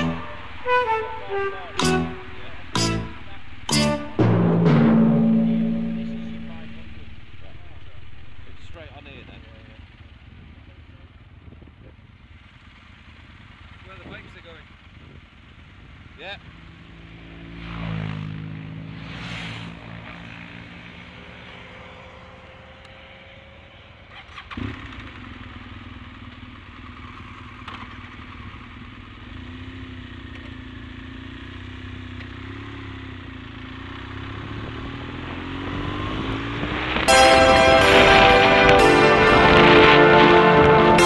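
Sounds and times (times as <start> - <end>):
music: 0.0 - 8.8, 37.1 - 41.0
motorcycle engine revving and accelerating: 12.3 - 22.4, 23.4 - 37.1.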